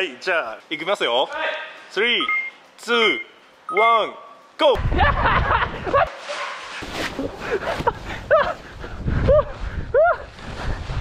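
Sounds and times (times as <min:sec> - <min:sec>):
body diving onto plastic tarp: 0:06.2 - 0:08.6.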